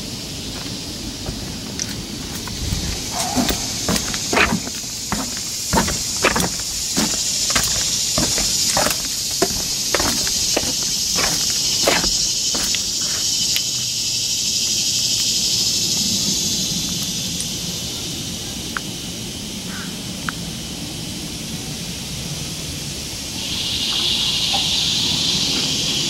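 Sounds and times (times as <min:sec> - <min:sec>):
high-pitched insect chorus: 0:00.0 - 0:26.0
footsteps on wooden boardwalk: 0:00.4 - 0:13.6.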